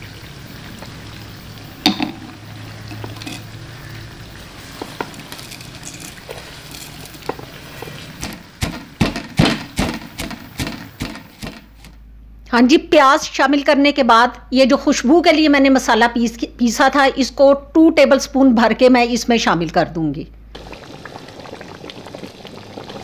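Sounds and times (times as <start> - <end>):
pestle pounding in mortar: 8.2 - 11.8.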